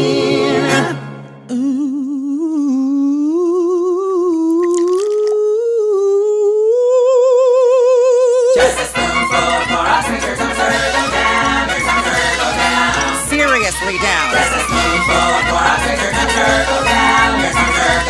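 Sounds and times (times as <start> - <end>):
person humming with vibrato: 1.5 - 8.6
backing music: 8.6 - 18.0.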